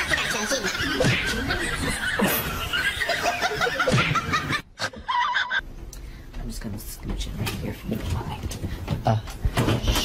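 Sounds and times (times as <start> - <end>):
people talking: 0.0 - 2.3, 6.4 - 9.3
people laughing: 0.0 - 5.6.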